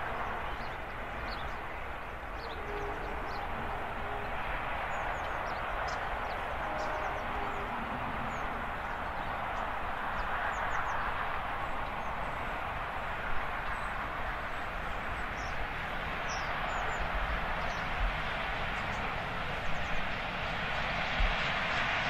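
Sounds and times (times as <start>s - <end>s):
small birds chirping: 0.0s - 9.6s
distant train rushing: 0.0s - 22.0s.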